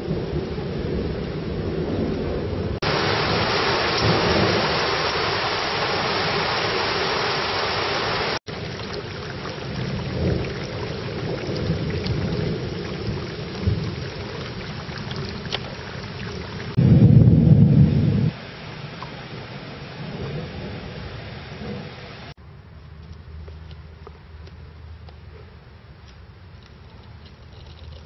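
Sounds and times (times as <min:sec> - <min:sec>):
low thunder rumbles: 0:00.0 - 0:07.1, 0:08.4 - 0:22.2
heavy rain hissing: 0:02.8 - 0:22.4.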